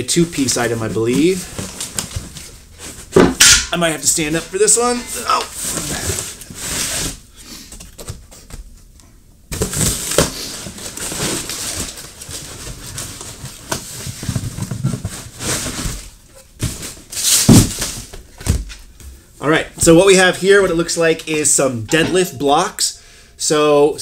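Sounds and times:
cardboard box rustling and scraping: 0:09.7 - 0:18.1.

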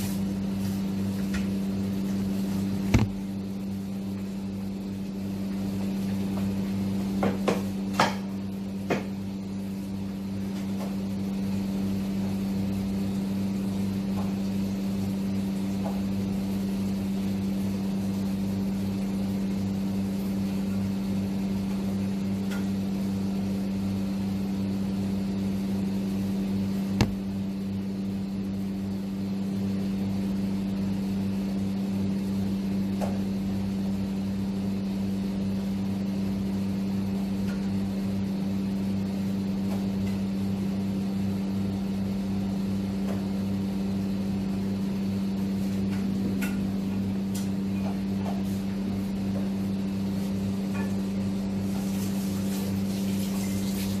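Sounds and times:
appliance electrical hum: 0:00.0 - 0:54.0.

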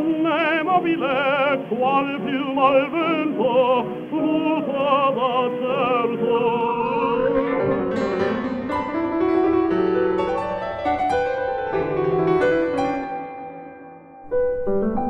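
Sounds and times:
operatic singer holding a note: 0:00.0 - 0:08.5
solo piano: 0:00.0 - 0:15.0.

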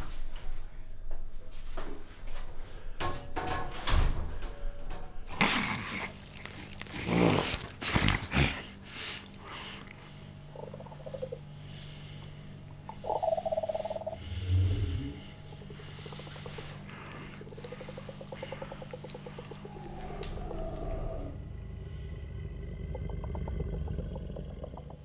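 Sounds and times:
low steady drone: 0:03.9 - 0:25.0
creature growls: 0:06.8 - 0:08.8, 0:14.1 - 0:15.4, 0:16.6 - 0:25.0
deep rumble: 0:10.2 - 0:25.0.

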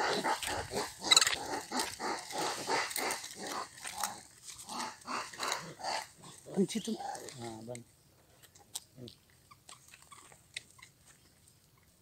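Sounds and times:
animal yelping and growling: 0:00.0 - 0:07.5.

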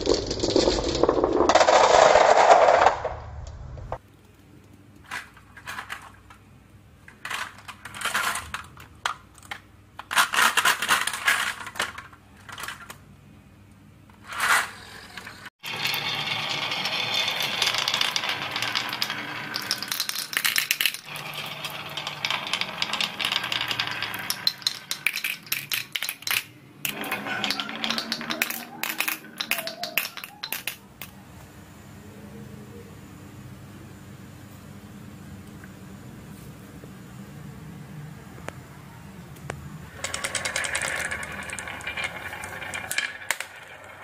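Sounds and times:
marbles rattling in plastic trailer: 0:00.0 - 0:03.3, 0:07.2 - 0:13.0, 0:14.3 - 0:31.1, 0:40.0 - 0:44.0
marbles rolling down wooden tracks: 0:00.0 - 0:03.9, 0:14.2 - 0:31.1, 0:40.0 - 0:44.0.

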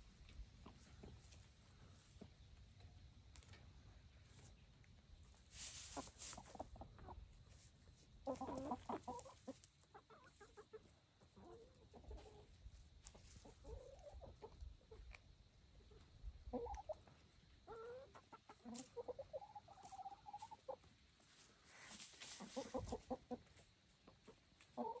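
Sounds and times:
rustling: 0:05.4 - 0:06.6, 0:21.2 - 0:23.0
hens clucking: 0:05.5 - 0:15.2, 0:15.8 - 0:25.0.

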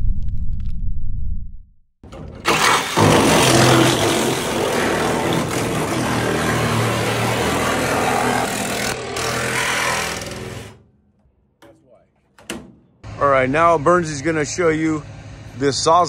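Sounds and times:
reciprocating saw cutting metal: 0:02.0 - 0:10.9.

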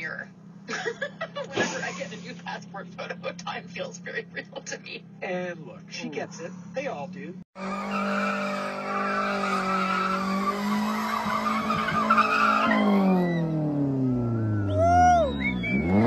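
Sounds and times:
car engine revving: 0:05.8 - 0:16.0
tyres squealing: 0:07.7 - 0:13.6.

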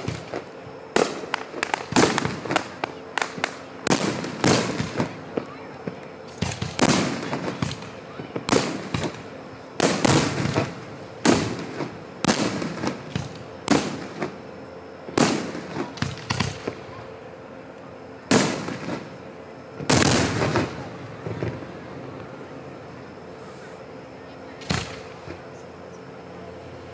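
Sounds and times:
firework shells booming: 0:00.0 - 0:14.4, 0:15.1 - 0:16.8, 0:18.3 - 0:19.2, 0:19.8 - 0:21.6.

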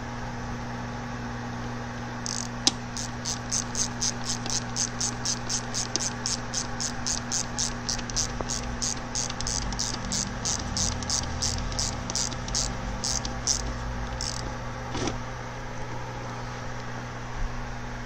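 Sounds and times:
steady low hum: 0:00.0 - 0:18.0
sharp metal click: 0:02.3 - 0:14.5
socket ratchet clicking: 0:02.3 - 0:14.5.

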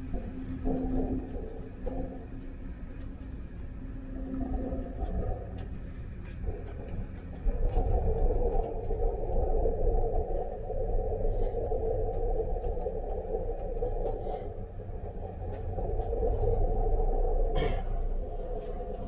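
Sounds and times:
ship machinery rumble and hum: 0:00.0 - 0:19.0.

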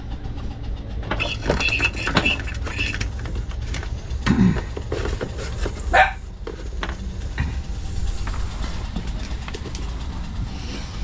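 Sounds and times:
steady low rumble: 0:00.0 - 0:11.0
plastic beaker and cardboard handled: 0:04.6 - 0:07.0.

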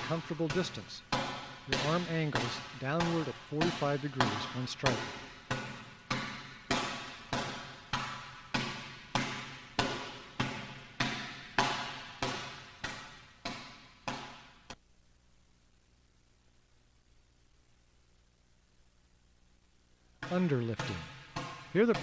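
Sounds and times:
palm slapping training bag: 0:00.0 - 0:14.8, 0:20.2 - 0:22.0.

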